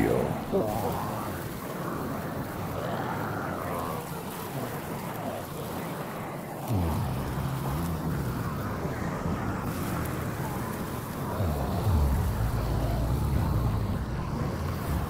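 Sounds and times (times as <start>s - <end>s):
deep tones sliding downward: 6.7s - 10.4s, 11.3s - 15.0s
dark ambient low rumble: 6.7s - 15.0s.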